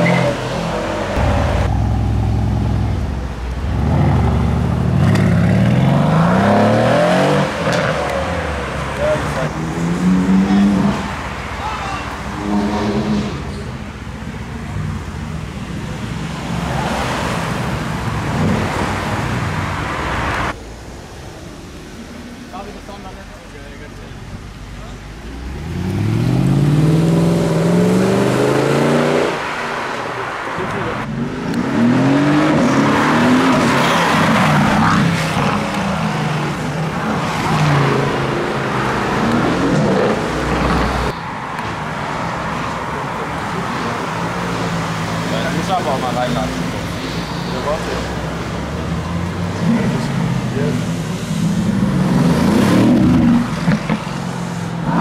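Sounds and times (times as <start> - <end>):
car engines revving: 0.0 - 55.0
sports car driving past: 0.1 - 8.1.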